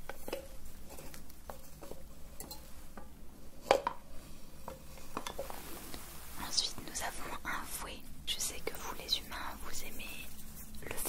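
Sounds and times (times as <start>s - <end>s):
small hard objects tapping and clinking: 0.0s - 4.0s.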